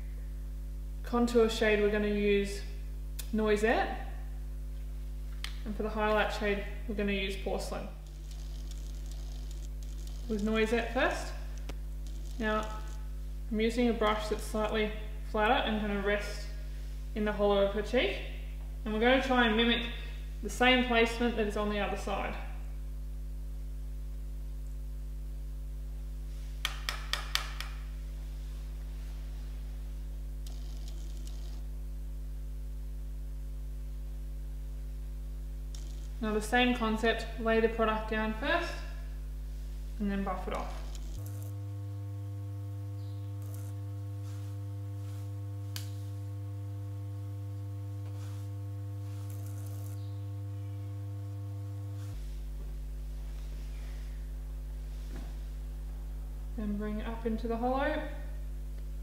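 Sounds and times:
steady electrical hum: 0.0 - 59.0
small click: 45.7 - 46.0.

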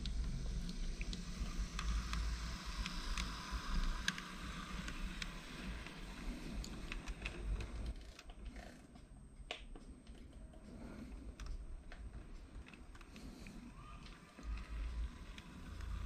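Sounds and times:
model locomotive running: 0.0 - 8.8, 12.0 - 16.0.

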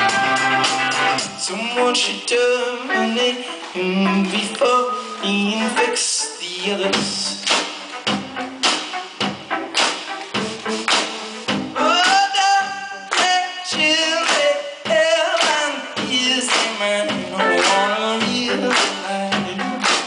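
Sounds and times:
man singing: 0.0 - 7.6, 11.7 - 20.0
rock band playing live: 0.0 - 20.0
drum hits: 7.0 - 12.4.

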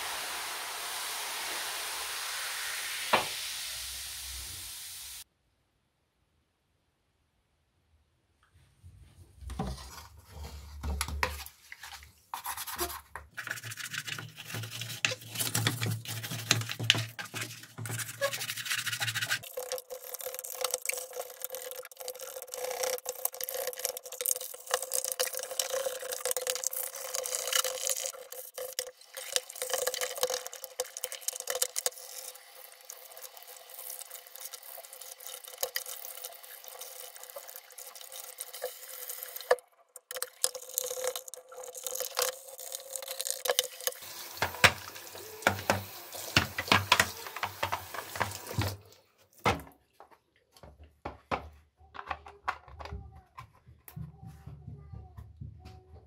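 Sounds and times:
toothbrush scrubbing plastic: 9.5 - 48.9.

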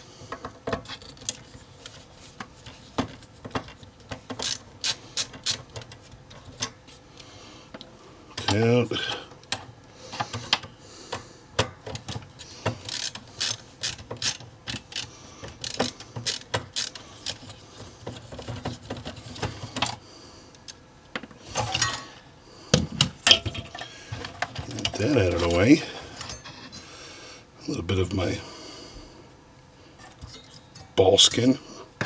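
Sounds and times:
ratcheting screwdriver clicking: 4.4 - 5.9, 12.8 - 17.5.

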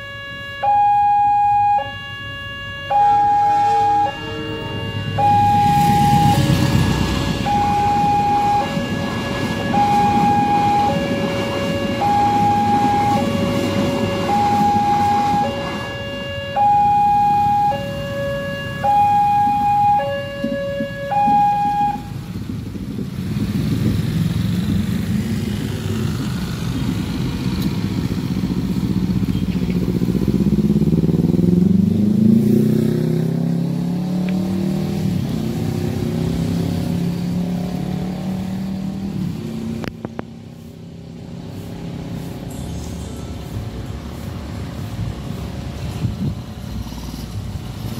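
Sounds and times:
two-tone crossing alarm: 0.0 - 22.2
motorcycle and car engines: 0.0 - 47.9
engine revving: 0.9 - 22.0, 23.3 - 40.1
passing train rumble: 2.9 - 47.9.

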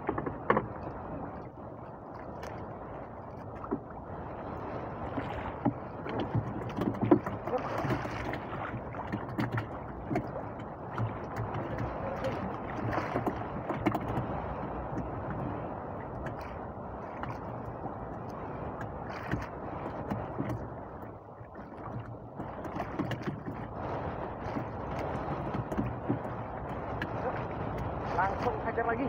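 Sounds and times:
water sloshing against boat hull: 0.0 - 29.0.

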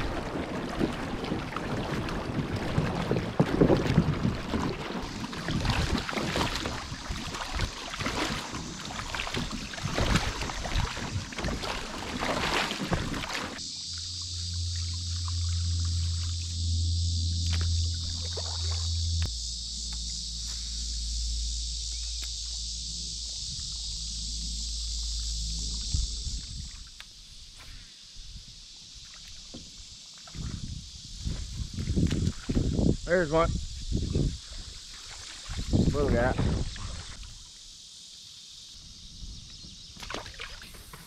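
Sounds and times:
wind buffeting microphone: 0.0 - 13.3, 25.7 - 26.8, 30.4 - 34.8, 35.5 - 37.2
high insect chorus: 0.0 - 41.0
low steady hum: 8.0 - 27.5.

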